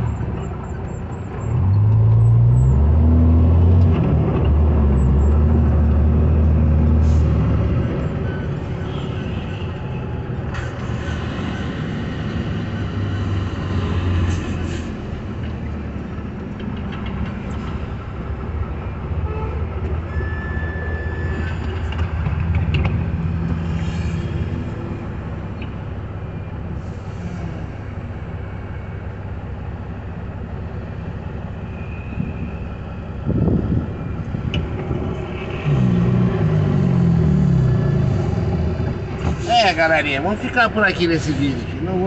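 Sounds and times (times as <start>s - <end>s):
truck diesel engines humming: 0.0s - 42.0s
short high beep: 20.1s - 21.5s.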